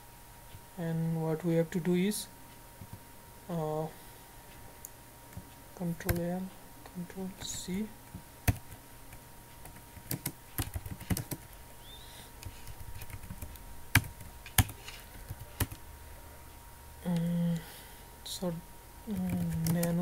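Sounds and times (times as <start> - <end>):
laptop keyboard keys clicking: 9.6 - 11.6, 12.4 - 15.8, 19.1 - 20.0.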